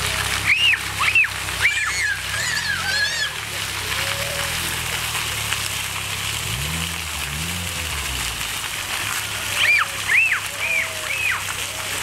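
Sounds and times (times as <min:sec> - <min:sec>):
fountain jets splashing: 0:00.0 - 0:12.0
child squealing: 0:00.4 - 0:04.5, 0:09.6 - 0:11.4.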